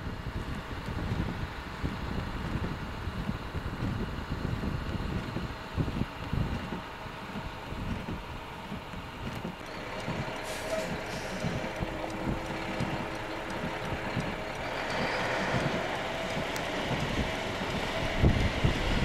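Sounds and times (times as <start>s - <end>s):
wind gusts on microphone: 0.0s - 19.0s
truck engines idling: 6.8s - 19.0s.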